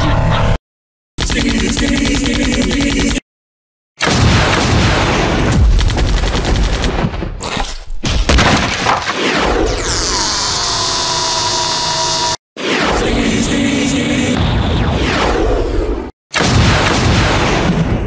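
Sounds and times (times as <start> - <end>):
rapid gunfire: 1.2 - 3.2, 4.0 - 7.4, 16.4 - 18.0
booms: 16.3 - 18.0.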